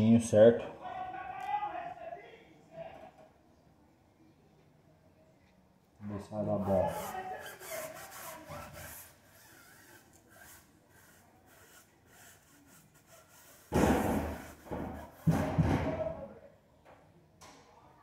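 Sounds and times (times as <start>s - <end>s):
cloth scrubbing tyre: 6.6s - 15.2s
cloth rubbing on tyre: 6.6s - 15.3s.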